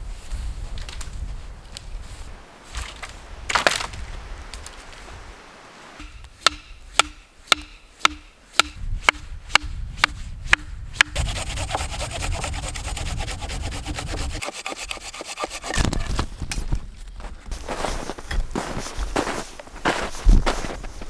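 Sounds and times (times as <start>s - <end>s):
sharp knocks: 6.0s - 11.9s
saw cutting through branch: 6.0s - 16.2s.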